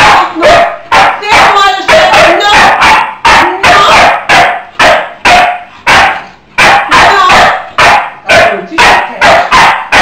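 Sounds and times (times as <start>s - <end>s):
dog barking: 0.0s - 10.0s
woman scolding: 1.2s - 2.8s, 6.9s - 7.5s.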